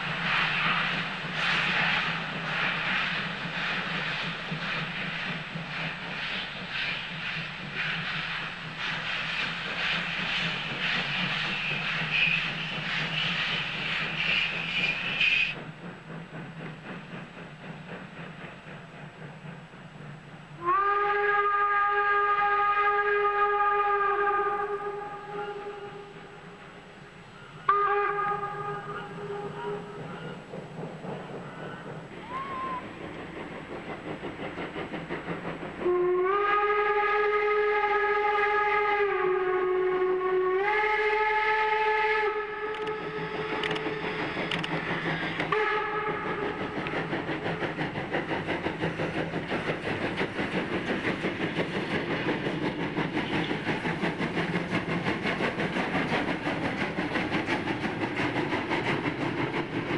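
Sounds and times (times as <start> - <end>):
hiss of steam: 0.0 - 59.9
steam locomotive chuffing: 0.0 - 59.9
steam whistle blast: 20.6 - 26.6, 27.4 - 30.4, 32.2 - 32.9, 35.8 - 44.5, 45.5 - 46.7.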